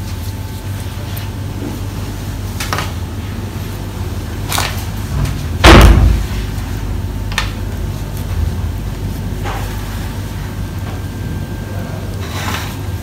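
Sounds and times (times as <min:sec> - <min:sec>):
loud sharp thump: 0:05.6 - 0:06.3.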